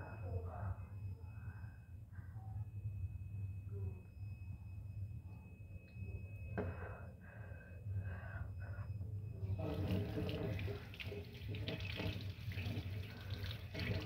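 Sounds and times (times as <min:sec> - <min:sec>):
water tap running: 0:09.6 - 0:14.0.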